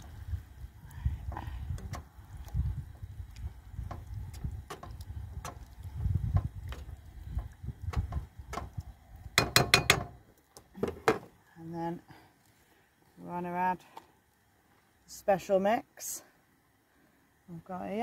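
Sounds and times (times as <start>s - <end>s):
turner tapping on pan: 6.3s - 8.8s, 9.4s - 10.2s.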